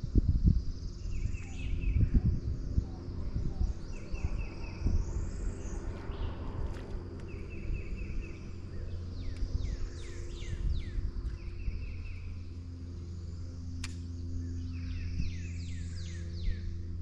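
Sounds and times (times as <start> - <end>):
low steady hum: 0.0 - 17.0
birds singing: 0.2 - 17.0
sharp click: 13.8 - 14.1.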